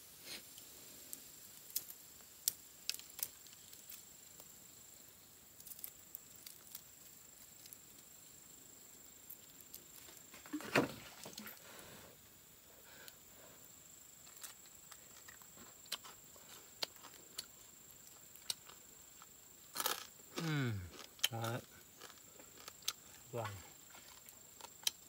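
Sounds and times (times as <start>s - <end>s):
charcoal fire crackling: 0.0s - 25.0s.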